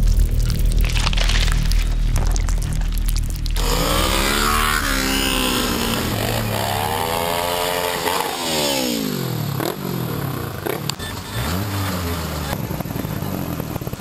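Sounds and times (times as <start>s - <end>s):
motorcycles riding past: 3.6s - 14.0s.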